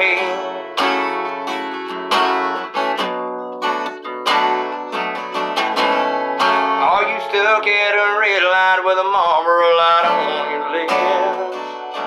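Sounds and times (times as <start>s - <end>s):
acoustic guitar strumming chords: 0.0s - 12.0s.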